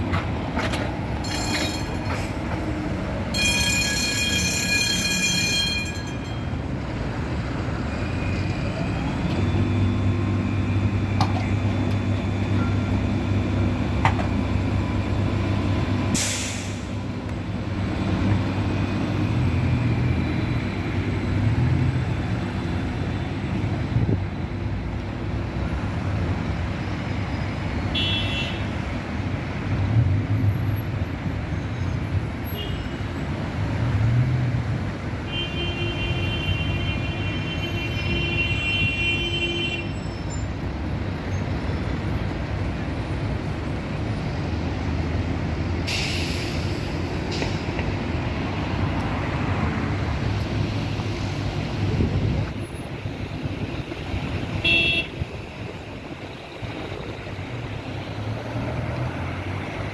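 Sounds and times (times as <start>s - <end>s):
buses passing: 0.0s - 59.9s
road traffic rumble: 0.0s - 59.9s
air brake hiss: 16.1s - 17.0s, 45.8s - 47.6s.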